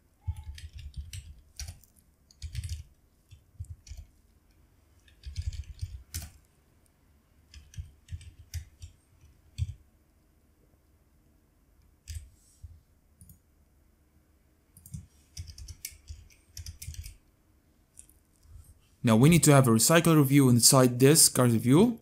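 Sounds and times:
computer keyboard typing: 0.2 - 4.2, 5.0 - 6.5, 7.5 - 9.8, 12.0 - 12.3, 14.8 - 17.2.

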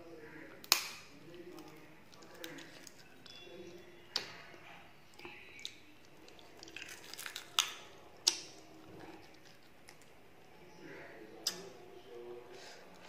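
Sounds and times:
person chewing food: 0.6 - 10.3.

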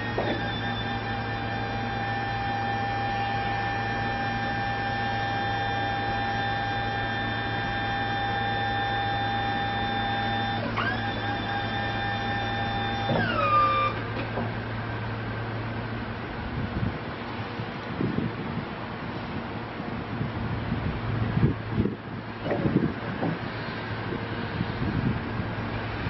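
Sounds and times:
hydraulic pump motor whining: 0.0 - 15.2.

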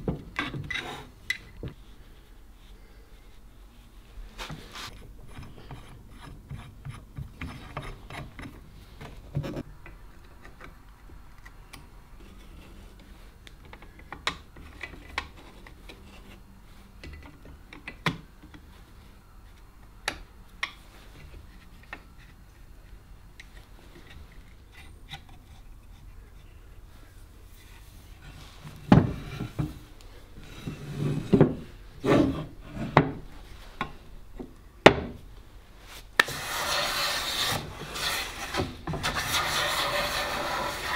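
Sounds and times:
plane strokes over wood: 36.2 - 40.9.

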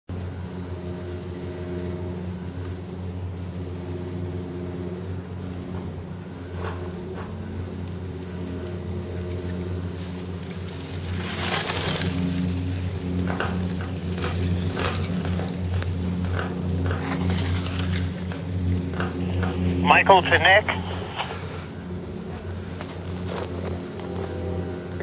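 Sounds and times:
low mechanical hum: 0.1 - 25.0
skis scraping across snow: 10.8 - 12.4.

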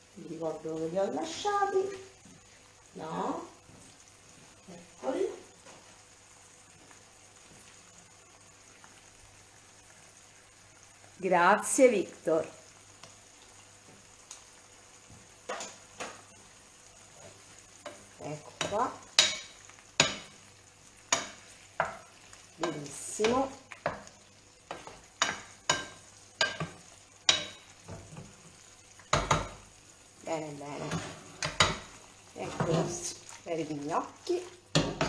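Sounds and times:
spoon scraping and knocking a pan: 15.5 - 16.2, 17.2 - 20.4, 21.1 - 24.1, 24.7 - 29.6, 30.7 - 33.4, 34.7 - 35.0.

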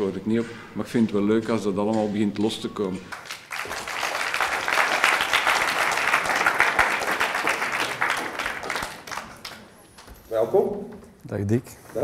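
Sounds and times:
audience applauding: 3.1 - 10.1.

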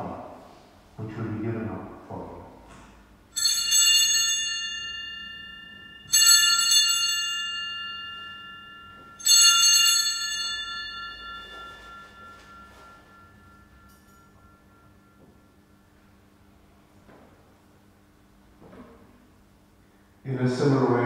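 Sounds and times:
altar bell ringing: 3.3 - 16.8.

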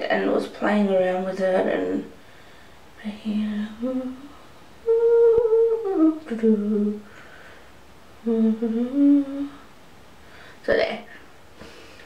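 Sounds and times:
woman humming: 3.0 - 7.1, 8.2 - 9.6.

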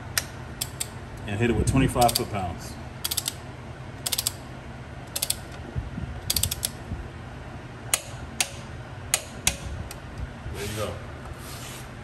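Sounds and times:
ratchet wrench clicking: 2.0 - 2.3, 3.0 - 3.4, 4.0 - 4.4, 5.1 - 5.5, 6.3 - 6.8.

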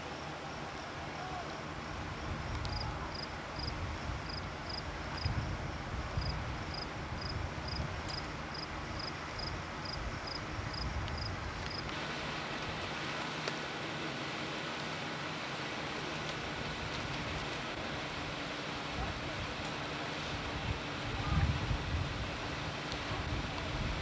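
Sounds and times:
insect chirping in high pips: 2.7 - 5.6, 6.2 - 11.9.

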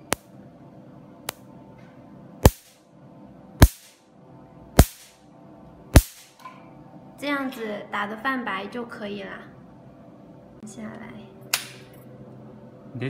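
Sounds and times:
faint laser unit hum: 0.0 - 13.0
laser firing sharp snaps: 2.4 - 2.8, 3.6 - 4.0, 4.8 - 5.2, 6.0 - 6.4.

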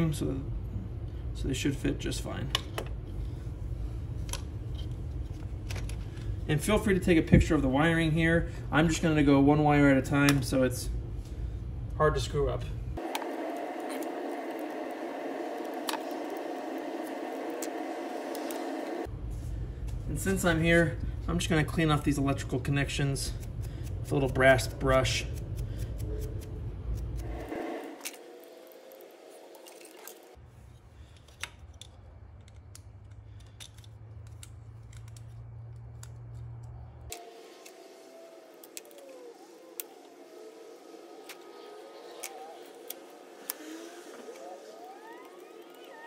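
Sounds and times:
steady hum: 0.0 - 30.4.

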